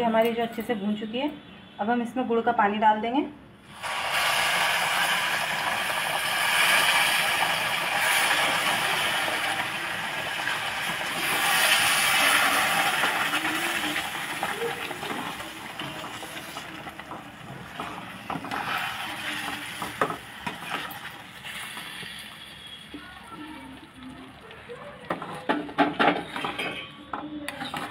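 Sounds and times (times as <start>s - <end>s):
liquid sizzling in hot pan: 3.7s - 25.2s.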